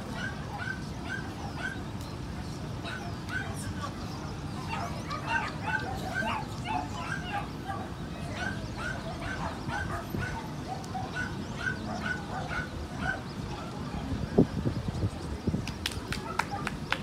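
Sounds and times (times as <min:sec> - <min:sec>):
dog barking: 0:04.7 - 0:13.2.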